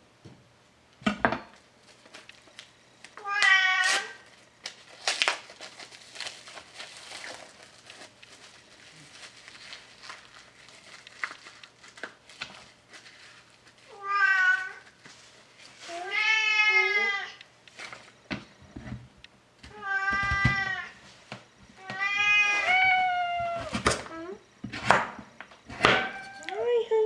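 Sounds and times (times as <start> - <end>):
cat meowing: 3.2 - 4.2, 13.9 - 14.8, 25.8 - 26.6.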